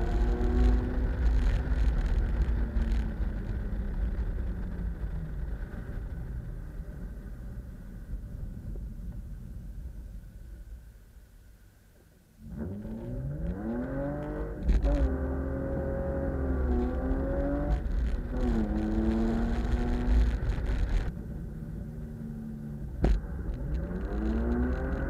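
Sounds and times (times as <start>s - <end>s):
car engine revving: 0.0s - 6.0s, 12.4s - 25.0s.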